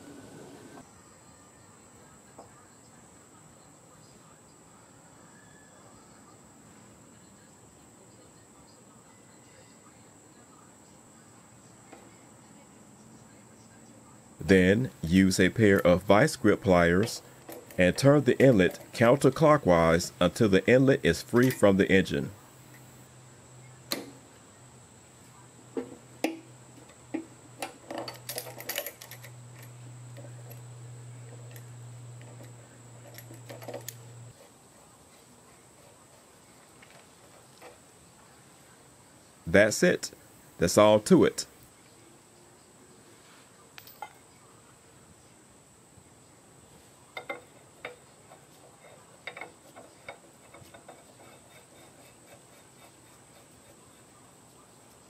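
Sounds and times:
steady low hum: 10.0s - 55.0s
metal pliers clicking and rattling: 27.6s - 30.6s, 49.2s - 51.3s.

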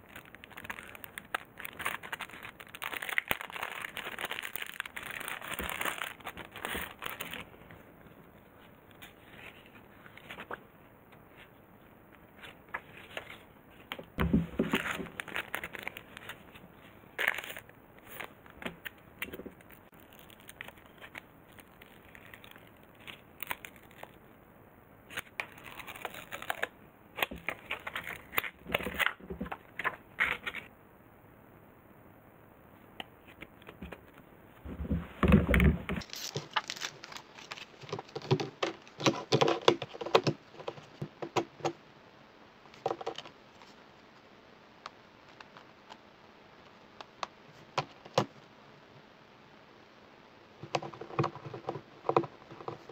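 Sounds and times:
plastic packaging crinkling: 0.0s - 7.8s, 12.4s - 24.2s, 25.1s - 30.7s, 34.8s - 41.0s.

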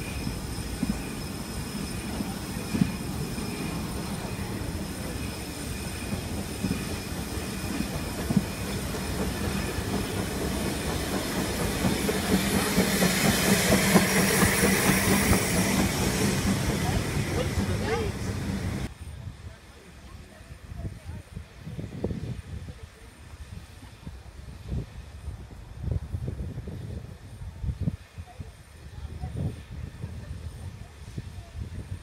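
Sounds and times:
steam hissing: 0.0s - 18.9s
train wheels clicking over rail joints: 0.7s - 18.9s.

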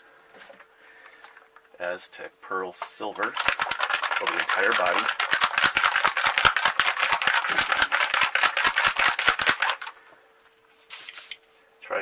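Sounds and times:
paint bottle rattling while shaken: 3.2s - 9.9s.

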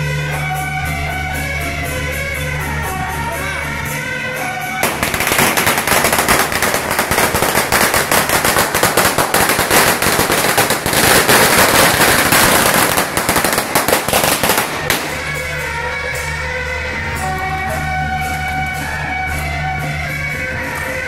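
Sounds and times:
firecrackers crackling: 4.4s - 21.0s.

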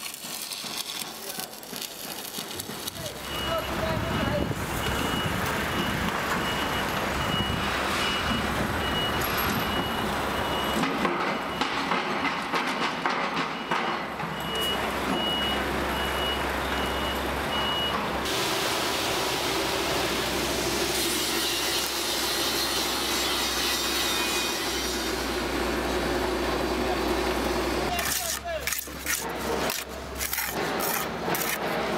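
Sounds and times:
concrete mixer truck running: 0.1s - 24.0s, 24.7s - 31.9s
reversing alarm beeping: 3.0s - 12.0s, 13.5s - 18.1s.

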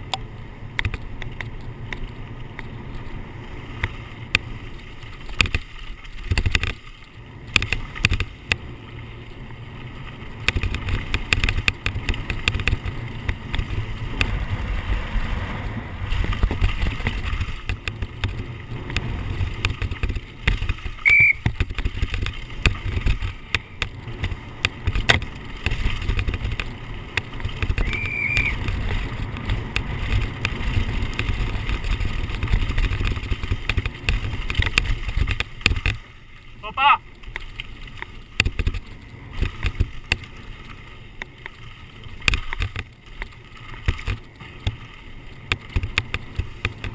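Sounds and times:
bike rattling and knocking: 0.0s - 46.9s
wind rumbling on microphone: 0.0s - 46.9s
high squeaks: 21.0s - 21.4s, 27.8s - 28.7s.

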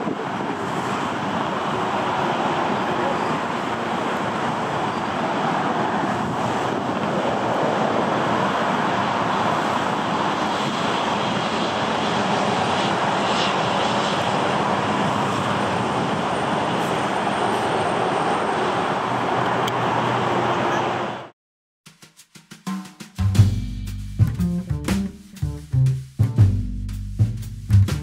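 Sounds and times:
jet engines rushing: 0.0s - 21.3s.

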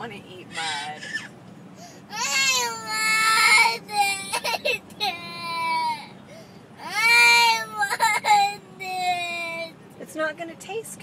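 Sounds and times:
girl crying: 2.1s - 6.1s, 6.8s - 9.7s.

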